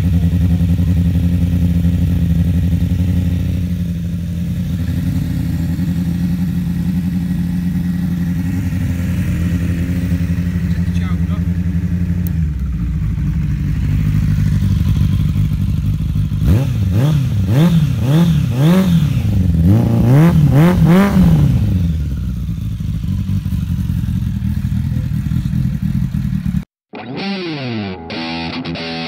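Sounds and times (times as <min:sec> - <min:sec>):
motorcycle engine idling and revving: 0:00.0 - 0:26.7
guitar music: 0:26.9 - 0:29.0.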